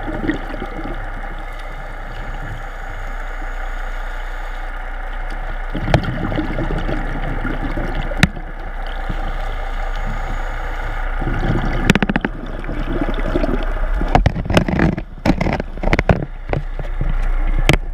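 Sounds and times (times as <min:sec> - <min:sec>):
diver's bubbles gurgling: 0:00.0 - 0:17.9
sharp clicks and knocks: 0:11.8 - 0:12.4, 0:14.0 - 0:17.9.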